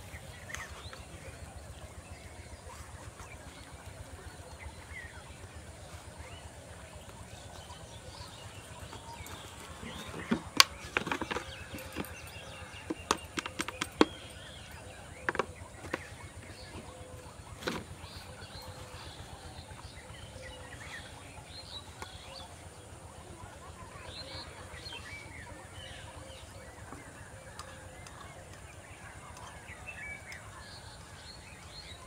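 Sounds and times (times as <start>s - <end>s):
sharp clicks and taps: 12.9s - 14.2s.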